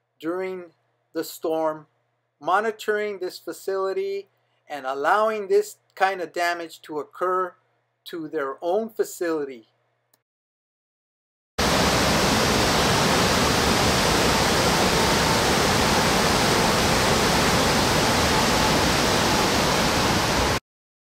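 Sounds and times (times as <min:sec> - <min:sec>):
rushing creek water: 0:11.6 - 0:20.6.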